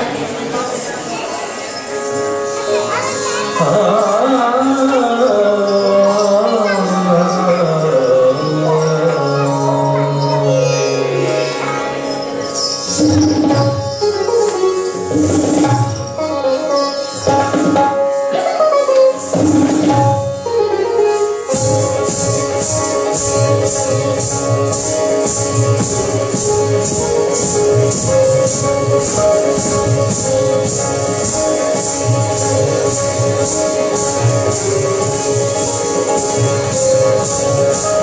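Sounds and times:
tabla strokes: 0:09.6 - 0:38.0.

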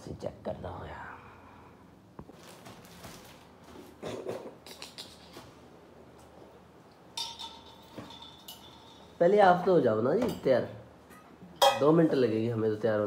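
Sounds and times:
plastic packets crinkling: 0:02.2 - 0:04.0
metal utensil clinking: 0:07.1 - 0:09.2, 0:11.6 - 0:12.0.

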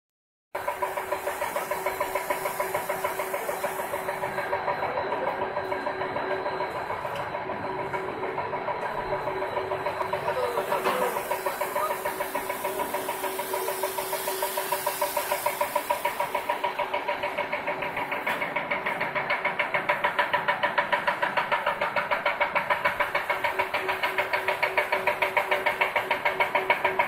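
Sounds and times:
machinery knocking rapidly: 0:00.6 - 0:27.0
mechanical hum: 0:00.6 - 0:27.0
hiss: 0:00.7 - 0:04.2, 0:10.6 - 0:16.8.

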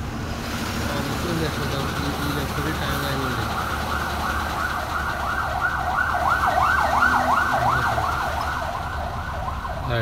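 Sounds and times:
low engine rumble: 0:00.0 - 0:10.0
siren wailing in fast yelp: 0:03.5 - 0:10.0.

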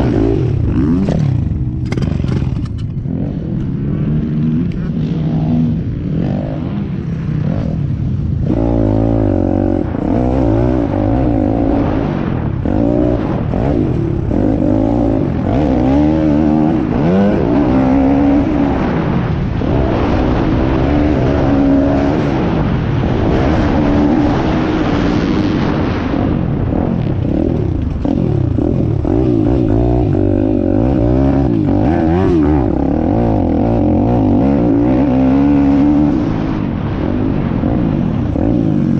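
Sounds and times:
pit bike engine revving: 0:00.0 - 0:38.9
wind noise on microphone: 0:00.0 - 0:38.9.

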